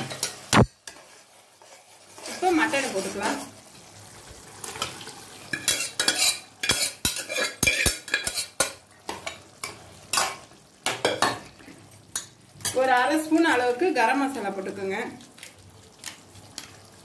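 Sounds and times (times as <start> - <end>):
spoon scraping metal pot: 5.5 - 8.8.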